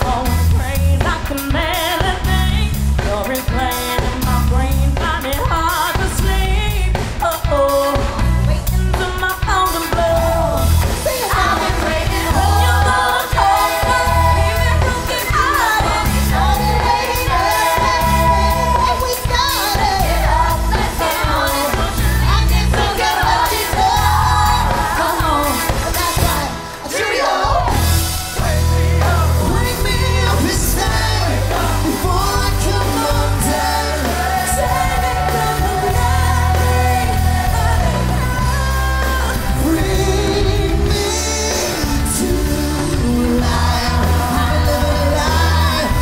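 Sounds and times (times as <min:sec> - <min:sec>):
drums and bass beat: 0:00.0 - 0:46.0
live pop-rock band: 0:00.0 - 0:46.0
person singing: 0:28.3 - 0:46.0.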